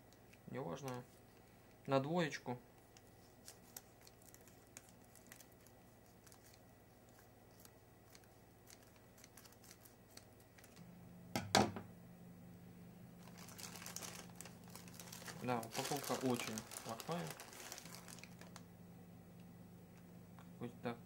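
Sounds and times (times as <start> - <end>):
plastic crinkling: 2.8 - 10.8, 13.2 - 18.7.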